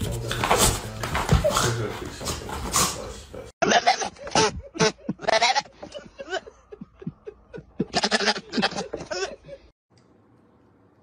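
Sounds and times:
goat bleating: 0:03.6 - 0:05.9, 0:07.8 - 0:09.2.

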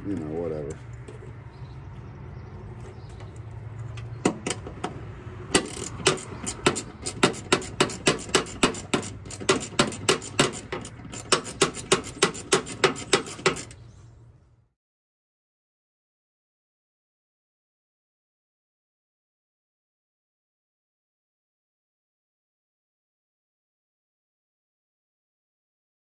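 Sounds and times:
hand ratchet clicking: 0:05.5 - 0:13.8.

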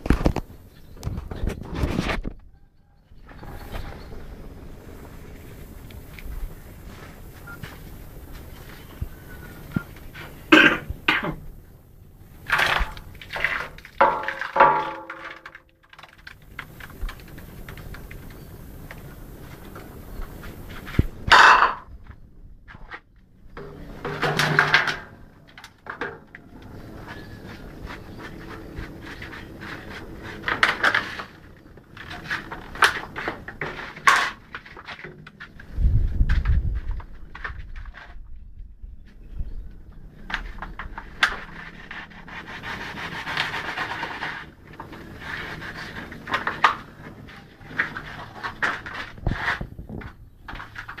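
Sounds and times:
person coughing: 0:10.5 - 0:11.4
metal scraping and clattering in pan: 0:12.4 - 0:16.9, 0:23.6 - 0:35.3.

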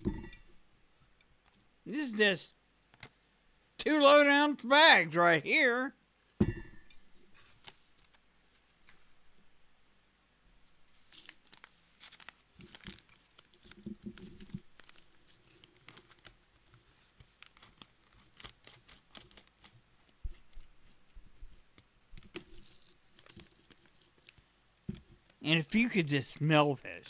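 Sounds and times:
packaging bag crinkling: 0:11.0 - 0:20.6, 0:22.2 - 0:24.4.

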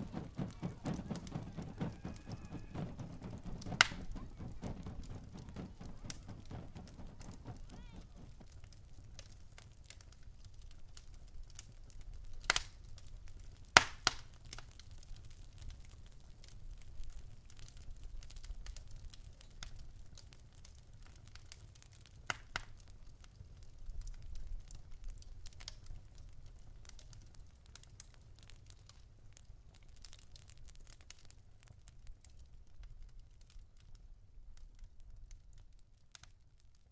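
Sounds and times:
low steady rumble: 0:00.0 - 0:09.2
fire crackling and popping: 0:00.0 - 0:36.9
sharp cracks of fire: 0:00.0 - 0:36.9.

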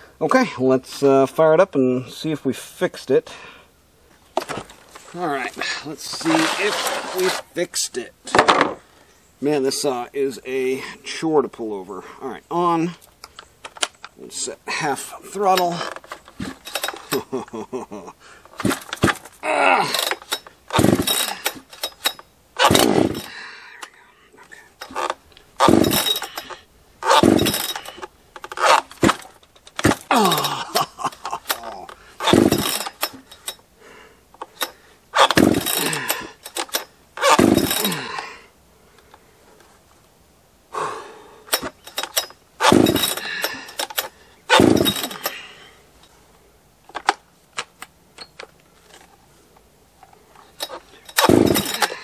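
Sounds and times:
chainsaw starter cord pulls: 0:04.4 - 0:07.6, 0:15.4 - 0:17.5, 0:18.4 - 0:33.6, 0:34.4 - 0:38.3, 0:41.5 - 0:45.5, 0:50.3 - 0:52.0.

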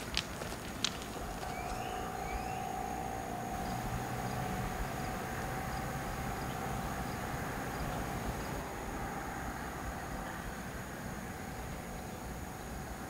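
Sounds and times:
distant drone: 0:00.0 - 0:13.0.

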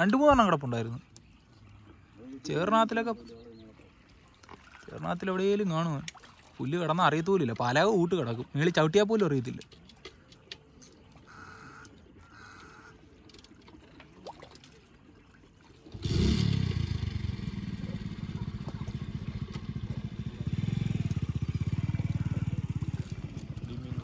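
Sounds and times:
small engine running: 0:15.9 - 0:24.0.

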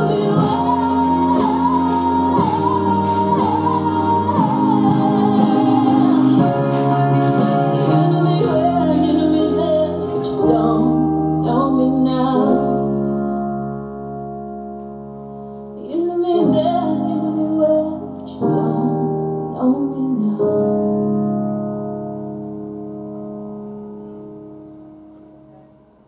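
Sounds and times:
woman singing pop song: 0:00.0 - 0:13.7, 0:15.8 - 0:21.6
keyboard chords: 0:00.0 - 0:26.0.

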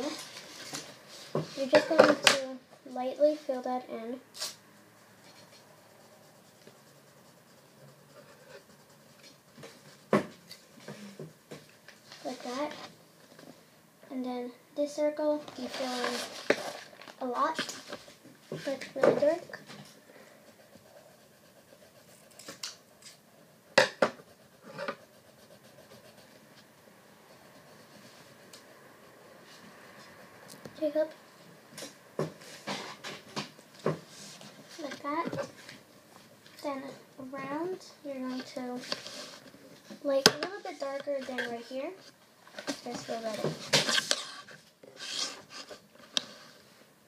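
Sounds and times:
pencil scratching on paper: 0:04.5 - 0:12.9, 0:15.3 - 0:31.0.

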